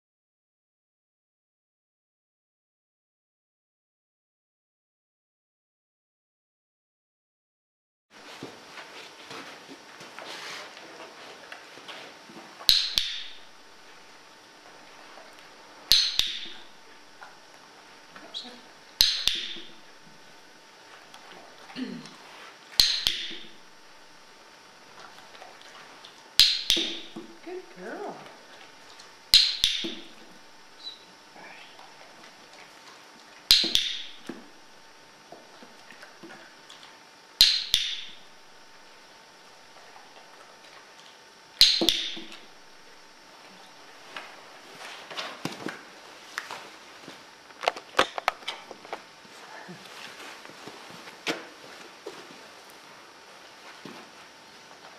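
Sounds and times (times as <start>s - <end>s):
soft rustling: 8.2s - 12.5s, 49.3s - 54.3s.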